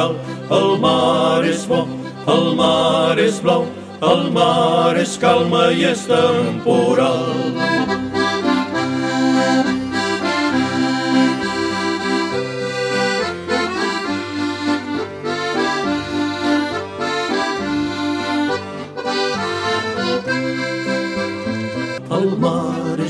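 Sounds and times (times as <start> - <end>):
accordion waltz: 0.0 - 23.0
bass line: 4.1 - 22.0.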